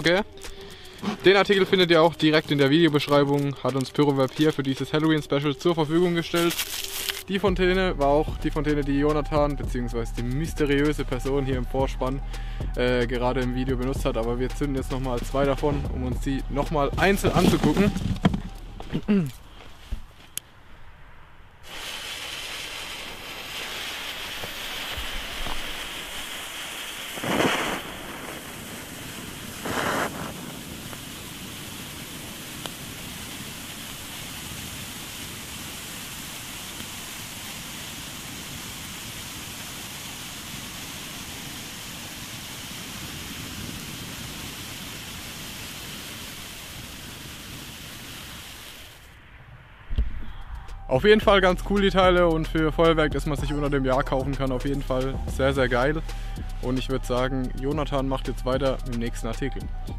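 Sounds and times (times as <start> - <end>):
firework fountain hissing: 0.0 - 5.2, 6.0 - 7.4, 16.5 - 19.0, 21.6 - 49.2, 55.0 - 56.9.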